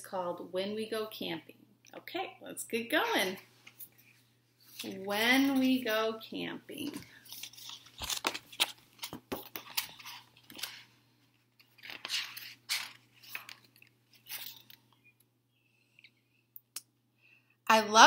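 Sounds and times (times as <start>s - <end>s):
book pages turning: 6.8s - 14.9s.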